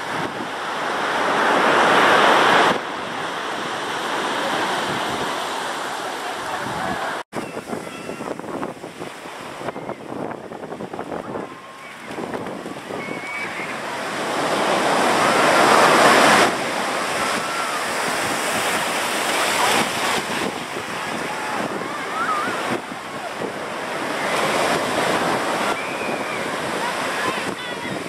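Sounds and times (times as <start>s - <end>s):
ocean surf breaking: 0.0s - 28.0s
wind buffeting microphone: 6.4s - 28.0s.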